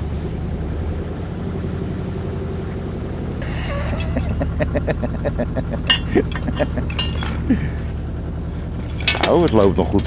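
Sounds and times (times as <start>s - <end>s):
boat engine running: 0.0s - 10.0s
light clinks: 3.7s - 4.6s, 5.7s - 7.6s, 8.7s - 10.0s.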